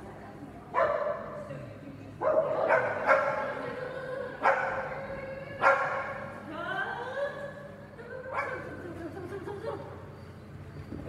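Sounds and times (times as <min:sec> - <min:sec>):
dog barking: 0:00.8 - 0:01.3, 0:02.2 - 0:03.5, 0:04.4 - 0:04.9, 0:05.6 - 0:06.2.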